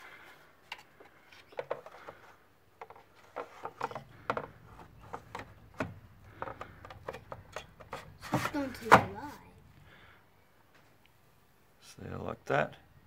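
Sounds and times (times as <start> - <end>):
clicks knocks and rubbing: 0.7 - 9.2.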